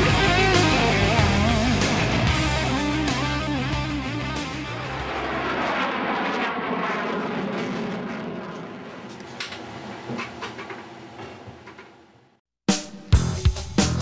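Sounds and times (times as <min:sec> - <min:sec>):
jet fighter passing overhead: 0:04.3 - 0:11.2.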